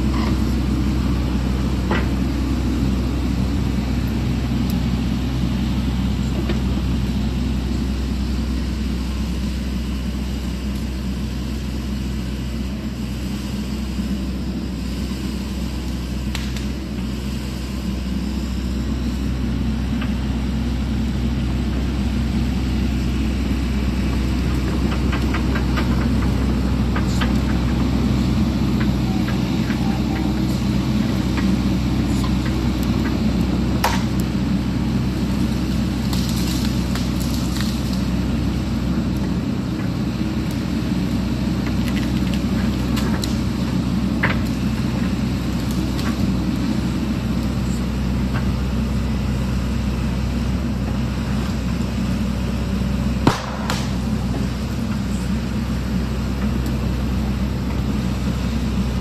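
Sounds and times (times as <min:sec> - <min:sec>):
excavator diesel engine running: 0:00.0 - 0:59.0
sharp cracks and clicks: 0:53.2 - 0:54.2.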